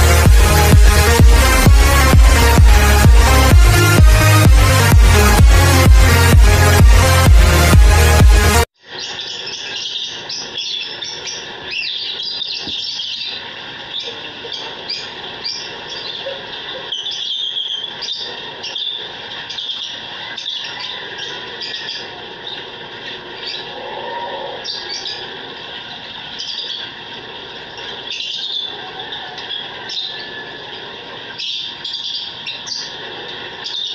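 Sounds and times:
lovebirds chirping: 8.9 - 33.9.

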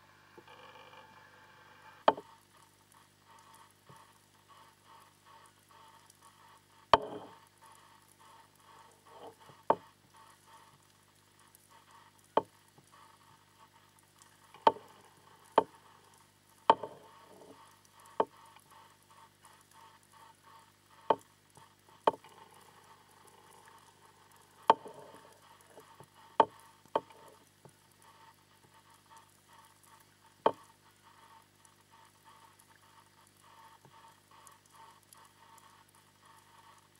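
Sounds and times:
steady low hum: 0.0 - 11.6
faint crackle: 0.0 - 36.9
sharp underwater clicks: 2.0 - 36.9.

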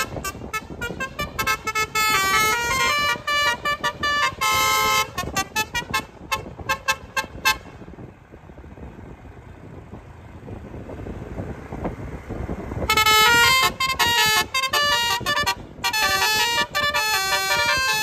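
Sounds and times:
multi-trumpet air horn melody: 0.0 - 7.8, 12.9 - 18.0
car tyre and engine noise: 0.0 - 18.0.

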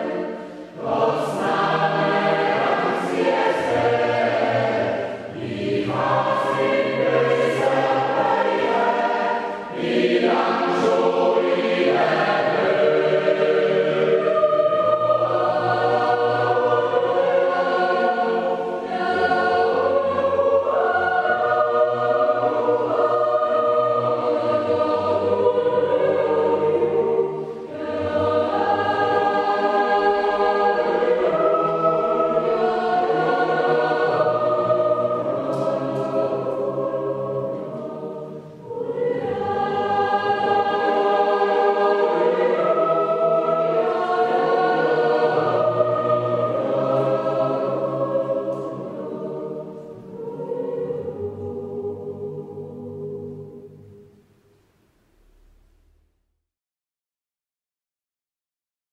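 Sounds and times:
choir singing sustained chords: 0.0 - 56.2
singers breathing: 0.2 - 0.8.

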